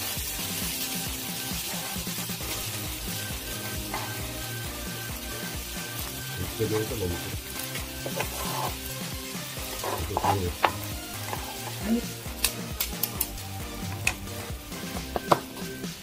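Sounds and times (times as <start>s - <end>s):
fried rice sizzling on griddle: 0.0s - 16.0s
utensils clicking on pan: 5.4s - 9.0s, 9.6s - 15.5s
wooden spatula scraping: 8.0s - 9.0s, 9.6s - 11.9s.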